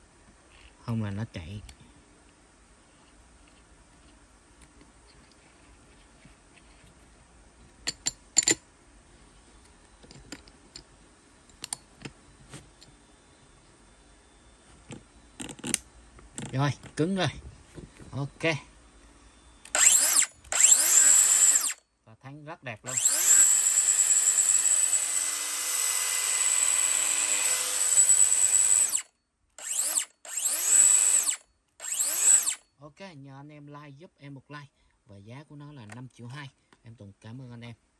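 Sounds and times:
cut-off tool high whine: 19.6s - 21.8s, 22.9s - 32.7s.

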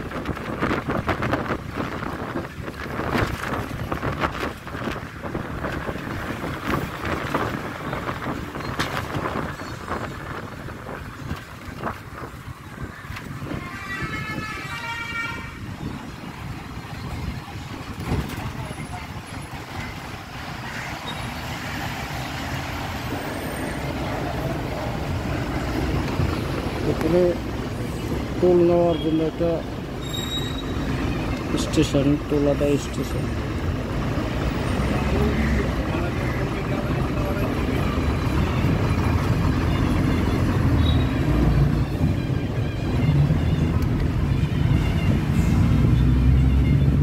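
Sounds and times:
wind gusting on microphone: 0.0s - 28.6s
bus road and engine noise: 0.0s - 47.0s
heavy trucks passing: 0.0s - 47.0s.

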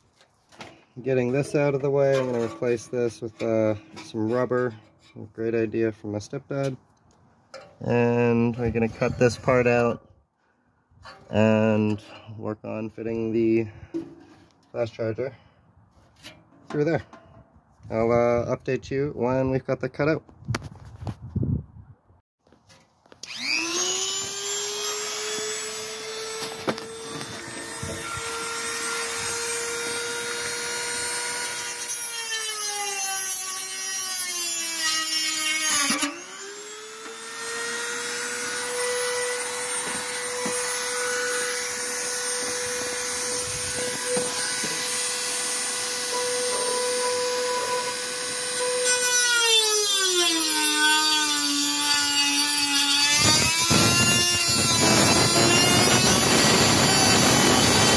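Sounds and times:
rotary tool cutting plastic: 23.0s - 57.9s.

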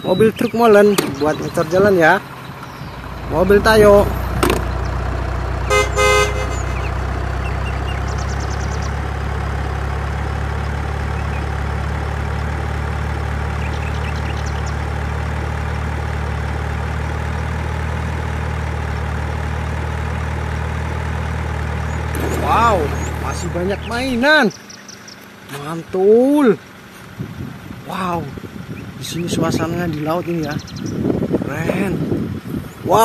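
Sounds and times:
heavy truck engine idling: 0.0s - 33.0s
truck horn toot: 5.6s - 7.2s.

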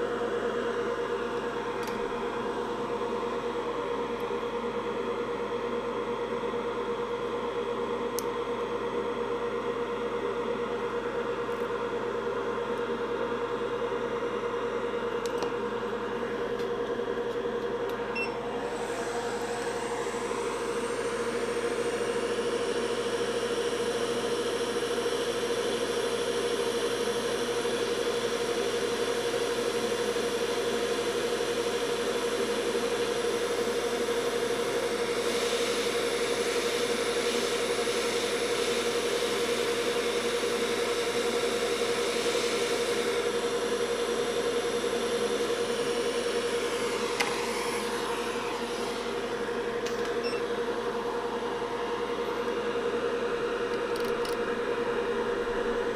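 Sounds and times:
hot-air blower whirring: 0.0s - 55.9s
airflow rising glide and hiss: 46.4s - 49.8s.

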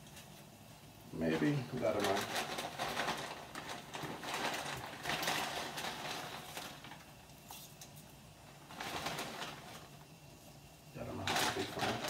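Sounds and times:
plastic packet crinkling: 1.3s - 7.3s, 8.6s - 10.1s, 11.0s - 12.0s.

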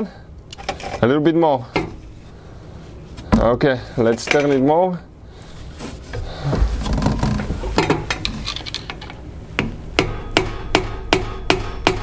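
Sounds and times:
handling noise: 5.6s - 9.7s
hammer tapping on metal: 9.6s - 12.0s.

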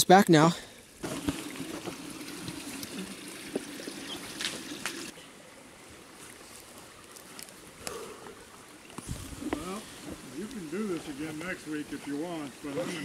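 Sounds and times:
brook water rushing: 0.8s - 13.0s
footsteps through wet brush: 5.9s - 12.6s.

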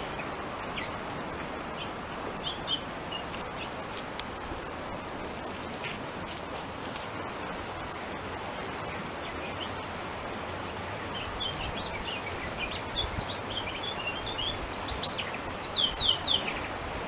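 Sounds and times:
steady background hiss: 0.0s - 17.0s
birds chirping and singing: 1.6s - 3.8s, 11.0s - 17.0s.

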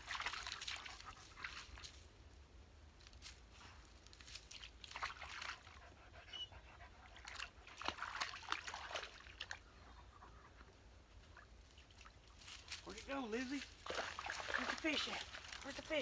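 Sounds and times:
dogs splashing in water: 0.0s - 1.9s, 4.5s - 6.1s, 6.9s - 9.9s, 11.2s - 16.0s.

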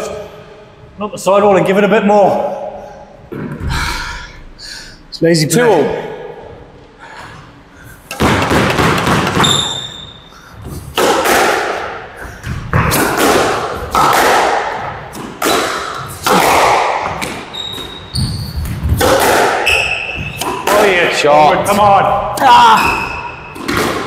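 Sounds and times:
squash ball hitting racket and walls: 8.1s - 24.0s
shoes squeaking on court floor: 9.3s - 10.8s, 17.1s - 19.0s, 19.6s - 20.6s.

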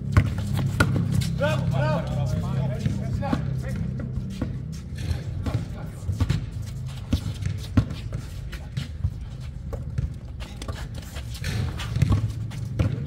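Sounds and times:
basketball bouncing: 0.0s - 1.3s, 2.8s - 8.2s, 8.9s - 10.8s, 11.4s - 13.0s
footsteps on court: 0.0s - 13.0s.

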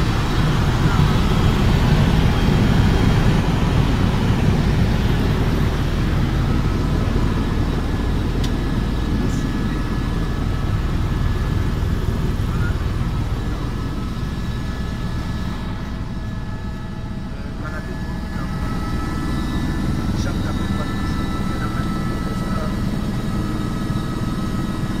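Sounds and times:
faint steady whine: 0.0s - 25.0s
helicopter engine and rotor rumble: 0.0s - 25.0s.

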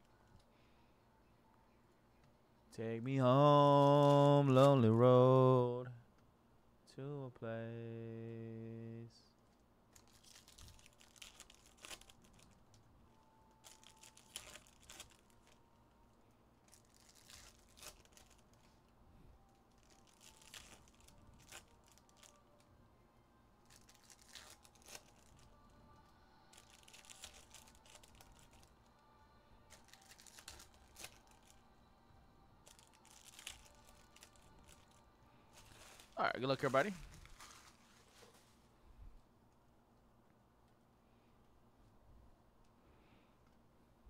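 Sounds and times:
wrappers crinkling and tearing: 9.4s - 15.6s, 16.6s - 18.9s, 19.6s - 22.7s, 23.6s - 28.9s, 29.7s - 31.7s, 32.6s - 38.5s.

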